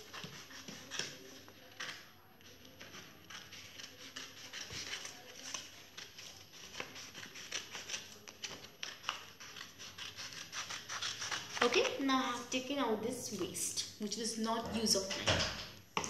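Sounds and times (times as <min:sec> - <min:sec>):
paper crackling and rustling: 0:00.0 - 0:12.4.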